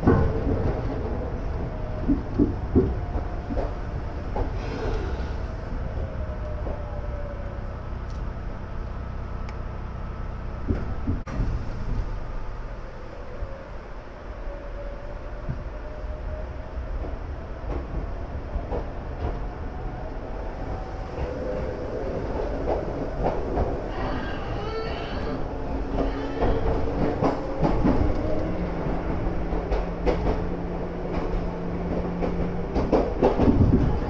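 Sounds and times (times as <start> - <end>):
wheels clacking over rail joints: 0.0 - 4.7, 21.1 - 34.0
train rumble: 0.0 - 34.0.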